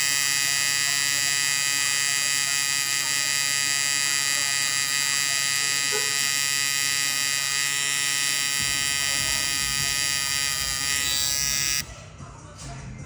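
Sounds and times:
tattoo machine buzzing: 0.0 - 11.9.

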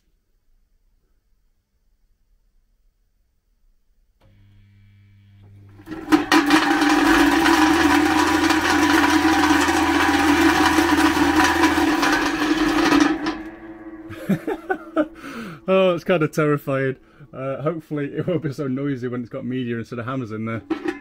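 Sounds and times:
motor humming: 4.2 - 15.7
metallic clatter and rattle: 5.9 - 15.2, 20.6 - 21.0.

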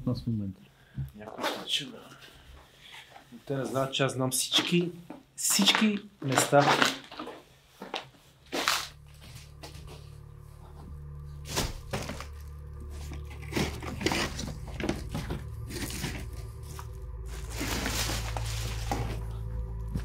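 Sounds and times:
low bass drone music: 8.4 - 20.0.

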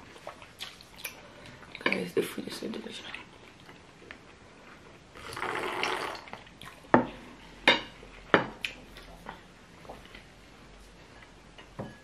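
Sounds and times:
wet slurping: 5.2 - 6.8.

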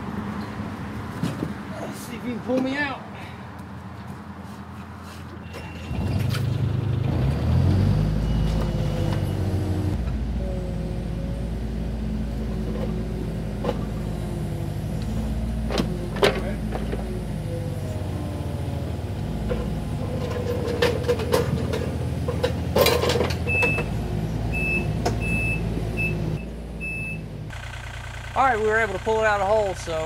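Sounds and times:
excavator diesel engines: 0.0 - 30.0
hydraulics working: 5.4 - 30.0
metal clanks from buckets: 19.5 - 23.8.

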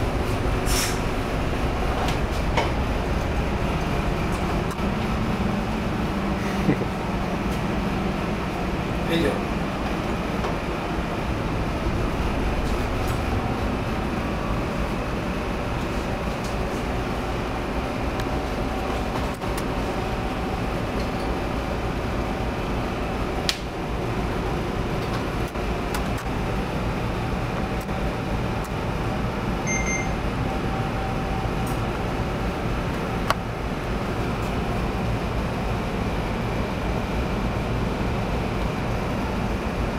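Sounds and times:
low hum of ship engines: 0.0 - 39.9
faint short beep: 29.6 - 30.2.

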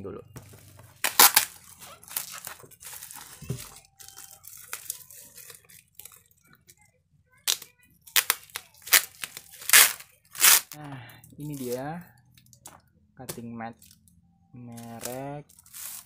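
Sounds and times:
bubble wrap crinkling: 0.4 - 10.8, 11.4 - 11.8, 14.7 - 16.0
bubble wrap cracking: 1.0 - 6.4, 7.4 - 10.8, 11.4 - 11.8, 14.7 - 16.0.

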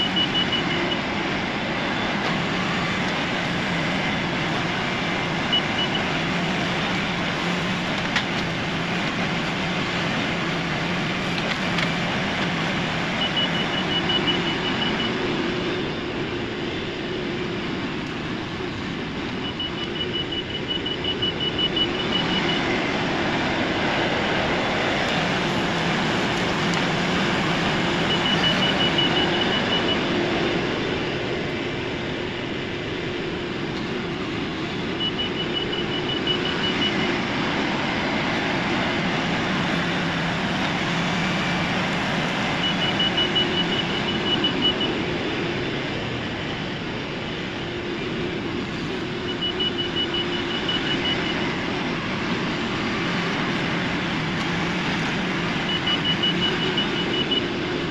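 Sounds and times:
faint high rapid beeping: 0.0 - 1.1, 5.4 - 7.4, 13.0 - 16.0, 19.4 - 23.4, 27.6 - 30.2, 34.5 - 37.3, 41.6 - 45.3, 48.8 - 51.7, 55.2 - 57.9
tractor diesel engine running: 0.0 - 57.9.

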